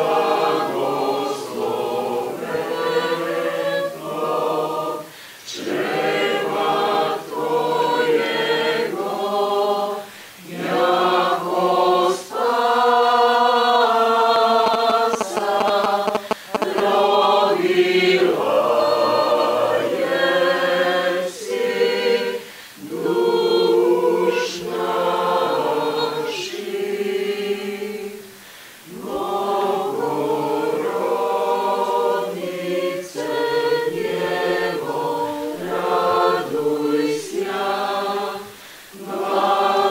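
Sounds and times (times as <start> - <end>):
mixed choir singing a cappella: 0.0 - 39.9.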